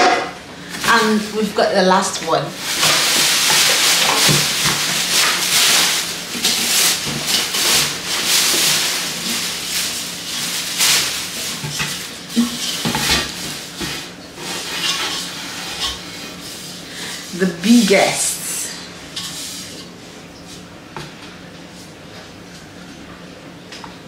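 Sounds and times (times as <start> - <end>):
plastic wrapping crinkling: 2.5 - 15.4.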